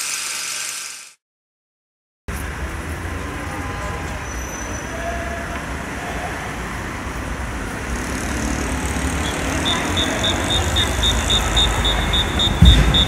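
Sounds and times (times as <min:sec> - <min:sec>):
road traffic rumble: 0:02.3 - 0:13.0
short high electronic beeps: 0:09.2 - 0:13.0.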